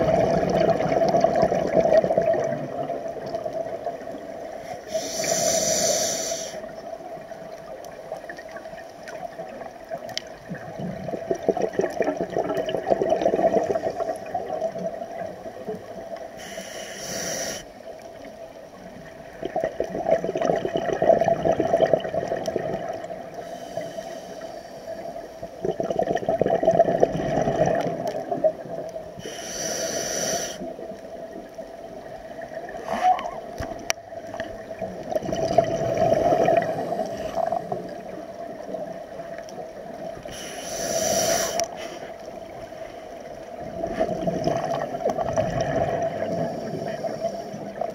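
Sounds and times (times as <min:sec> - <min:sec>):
gurgling exhaled bubbles underwater: 0:00.0 - 0:04.6, 0:06.6 - 0:16.3, 0:18.2 - 0:23.4, 0:24.9 - 0:29.2, 0:30.6 - 0:40.4, 0:41.6 - 0:47.9
regulator inhalation hiss: 0:04.6 - 0:06.7, 0:16.3 - 0:17.8, 0:23.4 - 0:25.4, 0:29.2 - 0:30.7, 0:40.2 - 0:42.3.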